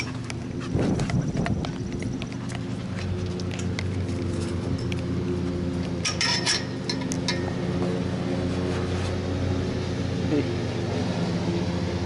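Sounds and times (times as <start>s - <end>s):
low mechanical hum: 0.0s - 12.0s
metal gate latch clinking: 6.0s - 7.7s.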